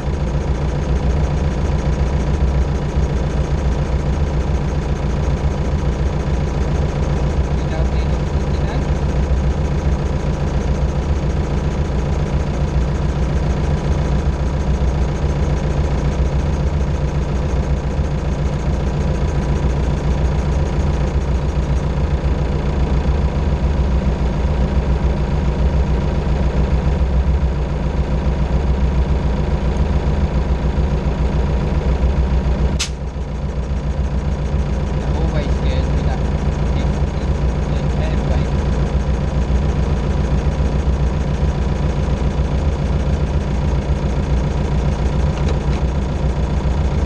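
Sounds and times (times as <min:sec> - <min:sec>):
diesel tractor engine idling: 0:00.0 - 0:47.0
sharp click: 0:32.8 - 0:33.0.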